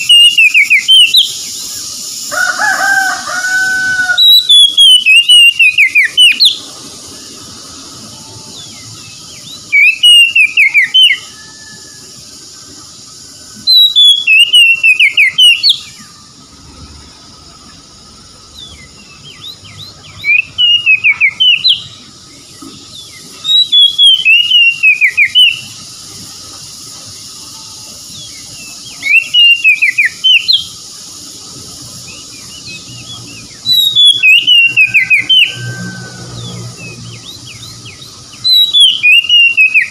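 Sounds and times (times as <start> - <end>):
bird singing whistled phrases: 0.0 - 2.3, 3.8 - 7.3, 8.1 - 12.0, 13.5 - 16.1, 18.6 - 22.1, 23.0 - 25.9, 27.5 - 30.8, 32.0 - 39.9.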